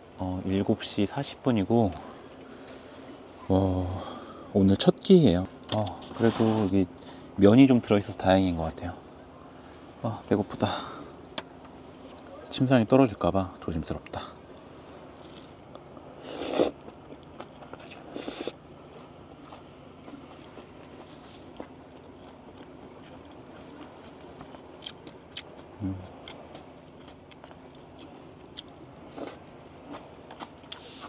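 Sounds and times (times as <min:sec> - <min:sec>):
person slurping noodles: 0:16.2 - 0:16.8, 0:18.0 - 0:18.6
chewing with smacks: 0:16.7 - 0:31.0.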